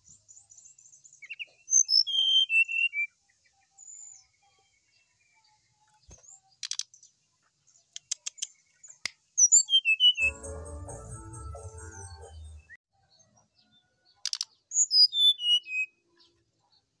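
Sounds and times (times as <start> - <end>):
bird song phrase: 0.0 - 10.3, 13.0 - 17.0
light clicks in cage: 6.0 - 7.0, 7.9 - 9.2, 14.2 - 14.6
background music: 10.2 - 12.8.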